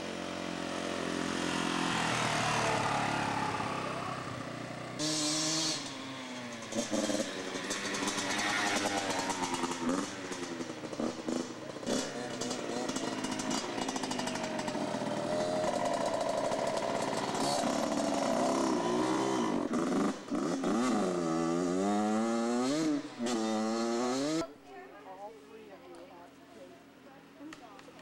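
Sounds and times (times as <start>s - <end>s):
dirt bike engines revving: 0.0s - 28.0s.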